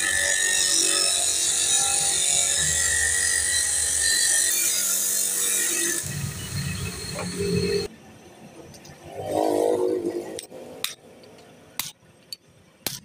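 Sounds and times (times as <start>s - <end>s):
cut-off disc grinding metal: 0.0s - 7.9s.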